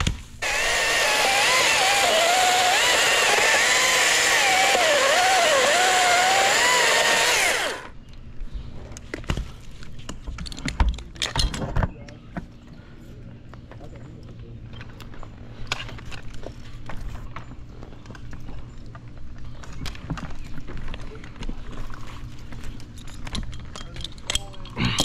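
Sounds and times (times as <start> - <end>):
chainsaw cutting wood: 0.4 - 7.9.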